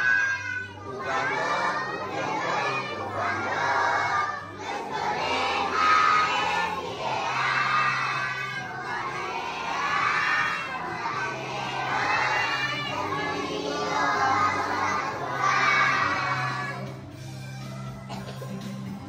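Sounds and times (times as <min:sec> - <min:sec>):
children singing a hymn: 0:00.0 - 0:17.2.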